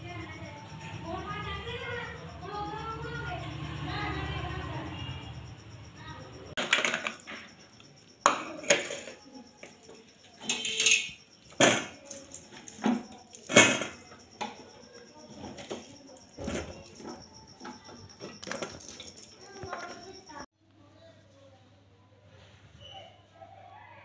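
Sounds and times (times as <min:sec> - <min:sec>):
food clattering into glass container: 0:06.6 - 0:07.5, 0:08.2 - 0:14.6.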